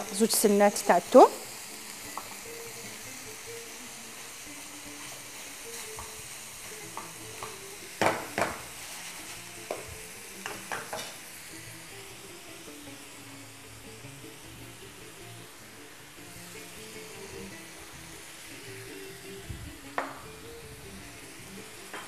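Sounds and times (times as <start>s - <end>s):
meat and onions sizzling in a pan: 0.0s - 22.0s
wooden spoon knocking against pan: 7.0s - 8.6s.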